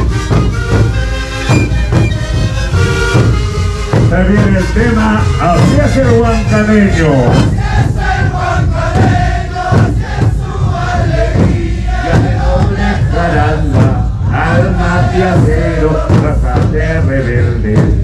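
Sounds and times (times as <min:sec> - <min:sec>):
panpipes playing together: 0:00.0 - 0:13.8
bass drums beating: 0:00.0 - 0:18.0.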